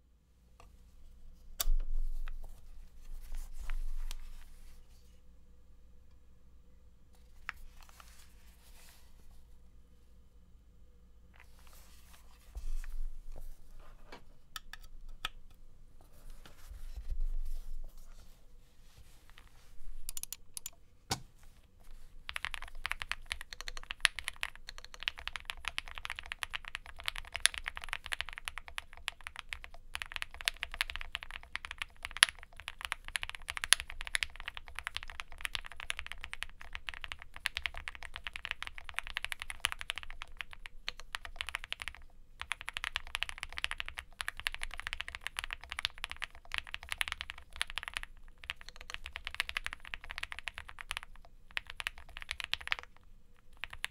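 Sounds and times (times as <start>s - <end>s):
separate clicks: 20.1s - 20.8s
fast typing on mechanical keyboard: 22.2s - 53.9s.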